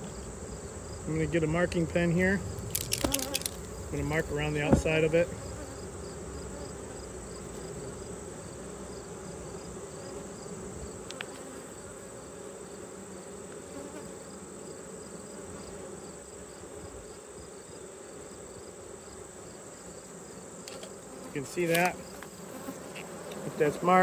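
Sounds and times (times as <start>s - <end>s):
bees buzzing: 0.0s - 24.0s
small click: 11.0s - 11.4s, 20.6s - 21.0s.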